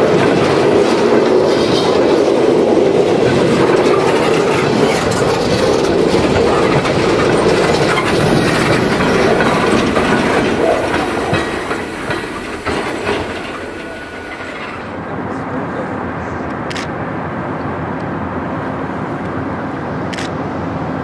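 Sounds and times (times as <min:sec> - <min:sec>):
train wheels clicking over rail joints: 0:00.0 - 0:15.0
train rumble: 0:00.0 - 0:21.0.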